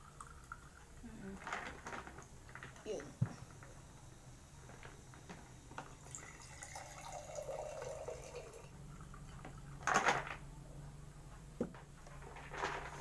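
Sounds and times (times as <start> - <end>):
drink pouring into glass: 0.0 - 1.0, 5.8 - 9.8.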